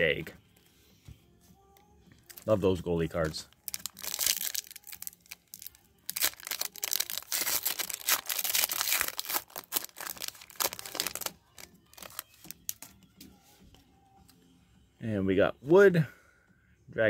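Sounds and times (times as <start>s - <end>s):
foil wrapper tearing and crinkling: 3.6s - 12.9s.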